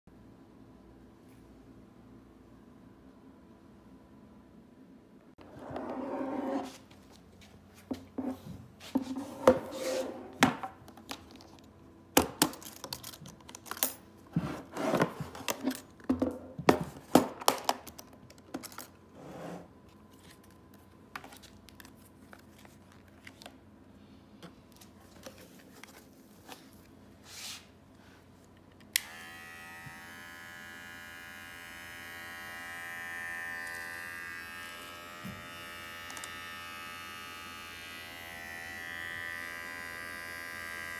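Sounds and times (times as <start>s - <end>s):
hair clipper buzzing: 28.9s - 40.9s.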